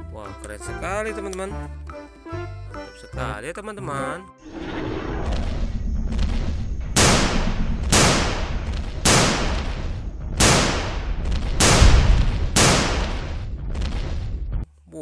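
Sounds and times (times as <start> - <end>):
steady low rumble: 4.4 - 14.6
loud gunshots: 7.0 - 13.5.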